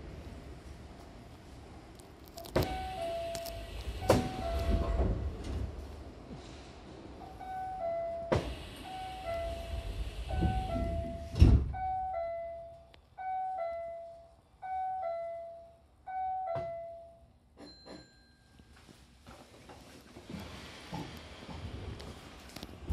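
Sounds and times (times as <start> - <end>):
train doors sliding shut: 2.4 - 12.3, 17.6 - 18.2, 19.6 - 22.9
two-note door chime: 2.6 - 5.2, 10.4 - 18.4.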